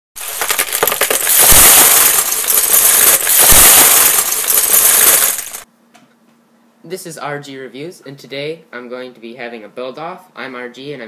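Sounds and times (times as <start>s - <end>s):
small hard pieces clattering: 0.2s - 5.6s.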